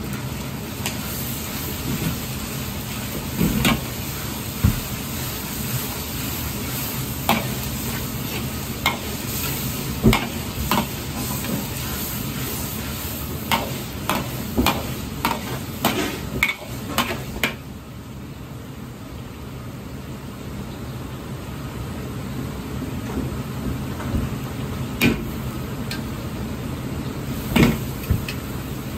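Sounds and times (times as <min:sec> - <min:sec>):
steady sizzle: 0:00.0 - 0:28.9
ladle scraping wok: 0:00.8 - 0:17.4.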